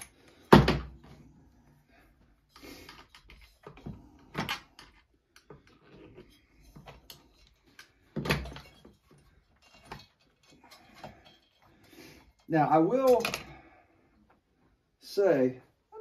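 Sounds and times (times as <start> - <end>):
chainsaw parts clunking and rattling: 2.6 - 13.6.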